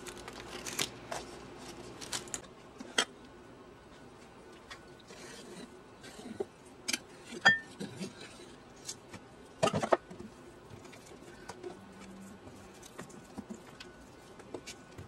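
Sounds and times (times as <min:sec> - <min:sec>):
glassy clink: 0:07.4 - 0:07.7.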